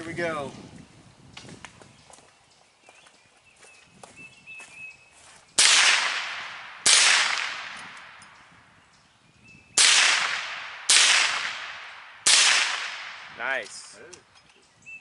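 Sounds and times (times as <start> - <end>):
rifle shots echoing: 5.6 - 8.3, 9.8 - 13.6.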